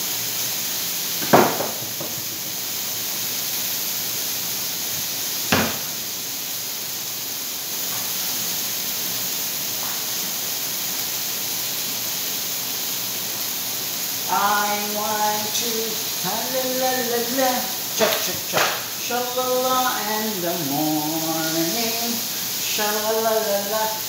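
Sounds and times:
chicken sizzling on hot plate: 0:00.0 - 0:24.0
sharp knock: 0:05.5 - 0:05.9.

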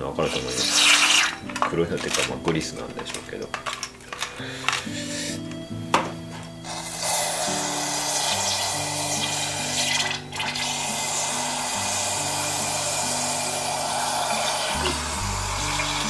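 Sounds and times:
aerosol spray hissing: 0:04.9 - 0:05.4, 0:06.6 - 0:16.0.

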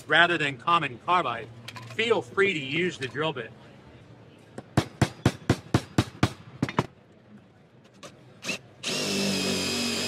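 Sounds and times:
cordless drill drilling into steel: 0:08.4 - 0:10.0.

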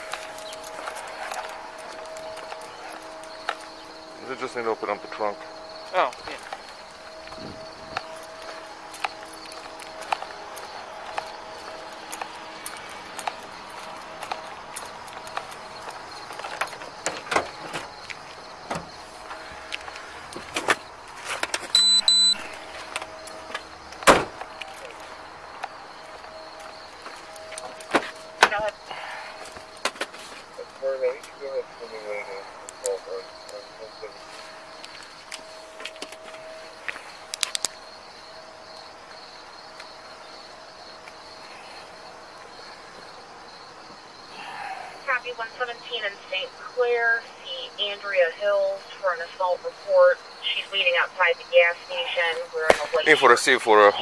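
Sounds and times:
insects chirping: 0:00.0 - 0:54.0
short loud electronic beeps: 0:21.8 - 0:22.4.

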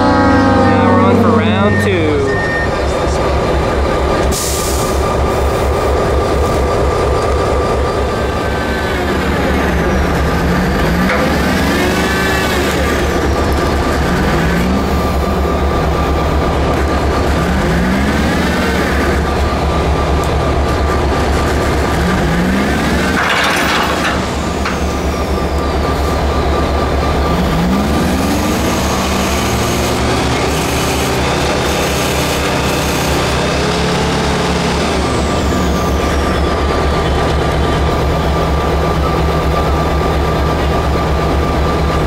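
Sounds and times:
rising and falling squeal: 0:00.0 - 0:03.3
diesel engine throbbing: 0:00.0 - 0:42.0.

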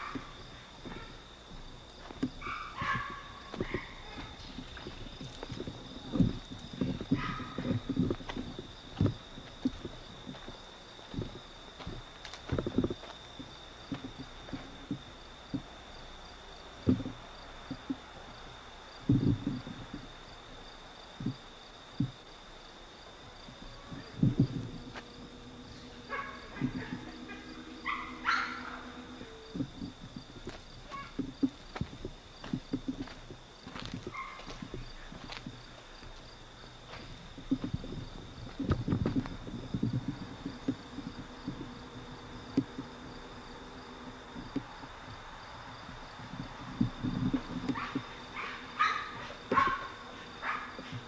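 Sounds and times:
footsteps on grass: 0:00.0 - 0:15.7, 0:23.5 - 0:41.9
low thumps and knocks: 0:00.0 - 0:15.7, 0:16.8 - 0:18.0, 0:19.0 - 0:20.1, 0:22.0 - 0:22.2, 0:23.5 - 0:35.6, 0:36.9 - 0:43.0, 0:44.3 - 0:45.2, 0:46.2 - 0:48.2
faint low hum: 0:00.0 - 0:51.0
insects chirping: 0:00.0 - 0:51.0
high-pitched insect chirring: 0:23.4 - 0:31.8.

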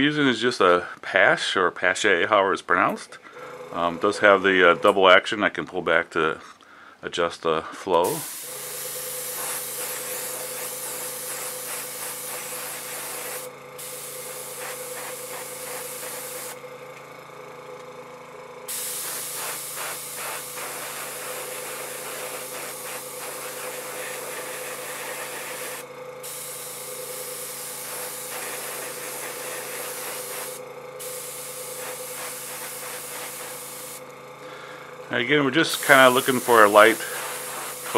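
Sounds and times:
airbrush spraying hiss: 0:08.0 - 0:16.6, 0:18.7 - 0:34.0, 0:35.7 - 0:37.9.

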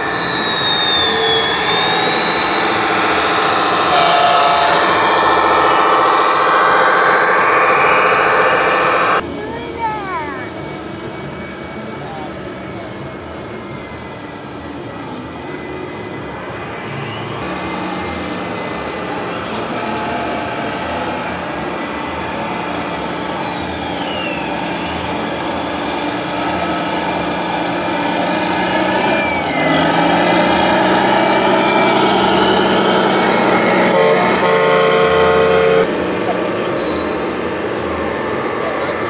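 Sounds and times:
loud held pitched tone: 0:00.0 - 0:09.2, 0:15.0 - 0:39.0
toy truck motor running: 0:17.4 - 0:37.8.

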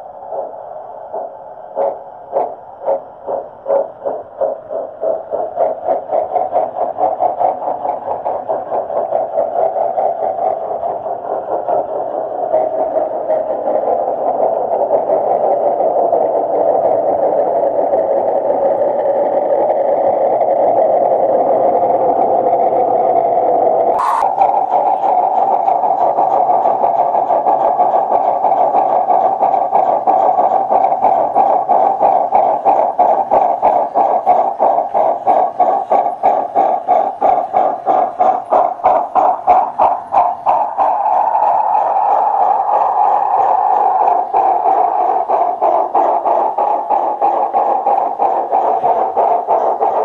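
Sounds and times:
model steam locomotive chuffing: 0:00.0 - 0:50.0.

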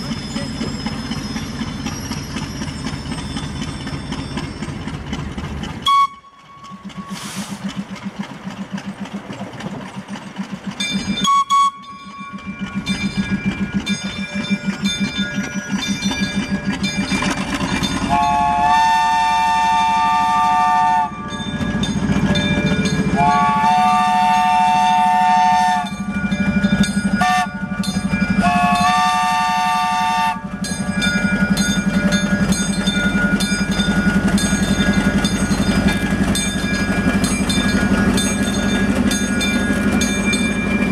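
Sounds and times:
locomotive engine running: 0:00.0 - 0:40.9
train chime horn blasts: 0:18.0 - 0:21.6, 0:22.9 - 0:26.3, 0:27.1 - 0:31.1.

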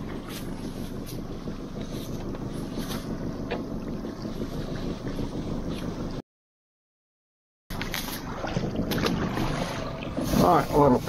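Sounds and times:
boat rumbling on water: 0:00.0 - 0:06.2, 0:07.7 - 0:11.0
wind on microphone: 0:00.0 - 0:06.2.

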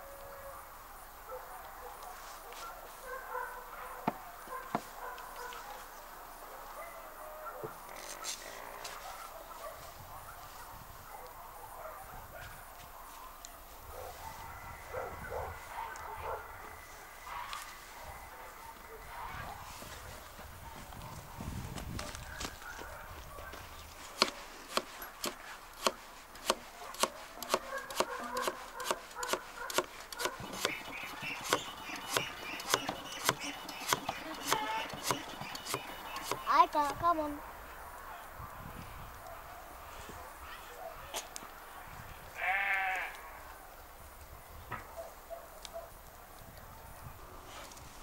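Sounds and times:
faint animal sounds: 0:00.0 - 0:21.3, 0:39.3 - 0:43.8
knife chopping on wooden board: 0:24.2 - 0:37.0.

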